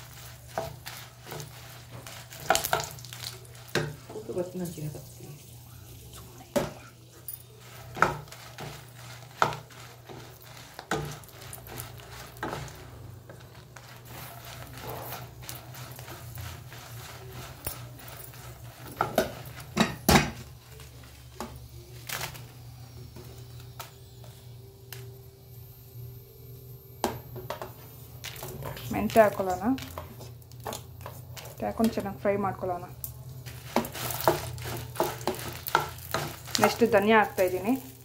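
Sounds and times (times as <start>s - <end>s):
chillies frying in oil: 0.0s - 38.0s
spatula knocking on frying pan: 7.9s - 10.2s.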